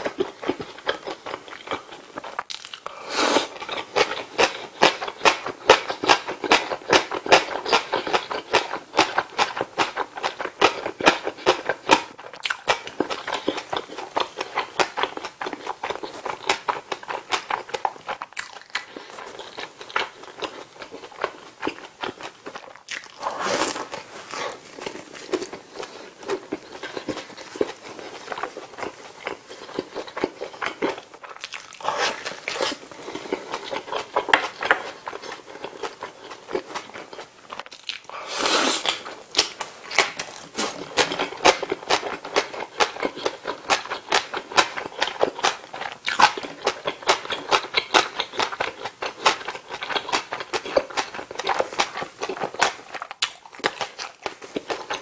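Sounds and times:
close chewing with mouth smacks: 0:00.0 - 0:02.9, 0:03.5 - 0:55.0
food crunching bites: 0:00.2 - 0:02.9, 0:35.8 - 0:38.1.

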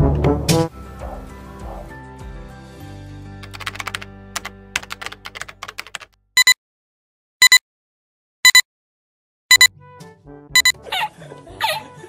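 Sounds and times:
music: 0:00.0 - 0:05.4, 0:09.6 - 0:12.0
rapid typing clicks: 0:03.4 - 0:06.1
short double beeps: 0:08.4 - 0:08.6, 0:09.5 - 0:09.7, 0:10.6 - 0:10.8.

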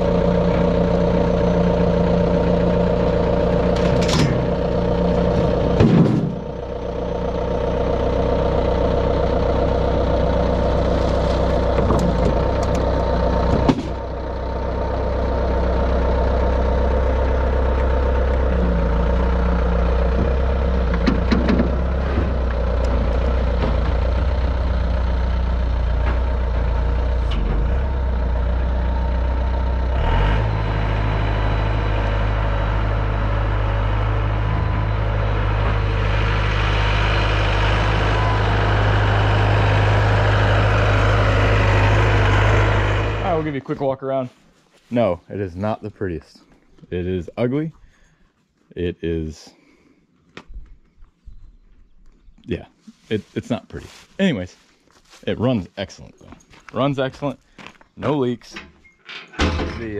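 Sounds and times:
diesel engine running: 0:00.0 - 0:44.2
metal knocks and clanks: 0:03.6 - 0:04.6, 0:05.2 - 0:06.5, 0:11.0 - 0:14.1, 0:20.1 - 0:24.3, 0:58.4 - 0:59.9.

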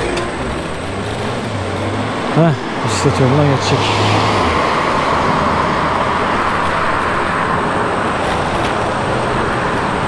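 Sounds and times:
road traffic noise: 0:00.0 - 0:10.0.

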